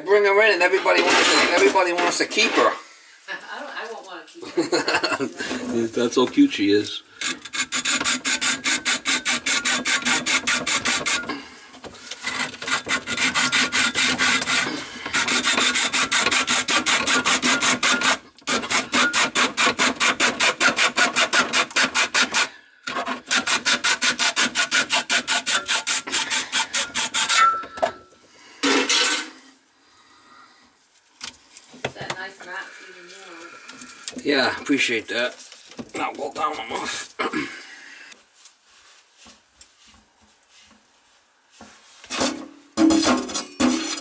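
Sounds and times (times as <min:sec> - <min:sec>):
hand saw cutting metal: 0:07.2 - 0:11.4, 0:12.1 - 0:27.8, 0:42.1 - 0:44.0.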